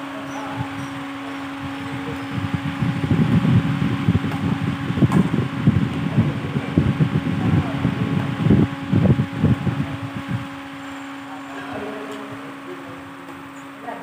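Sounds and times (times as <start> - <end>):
heavy ragged rumbling: 0.0 - 13.2
fan-like air rushing hum: 0.0 - 14.0.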